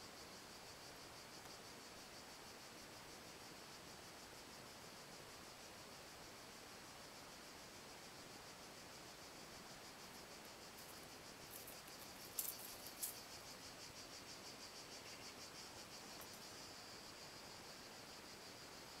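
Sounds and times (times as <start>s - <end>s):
insects pulsing calls: 7.4s - 19.0s.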